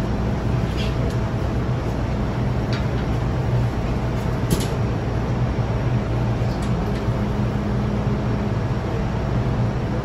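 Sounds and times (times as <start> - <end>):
train equipment and ventilation hum: 0.0 - 10.0.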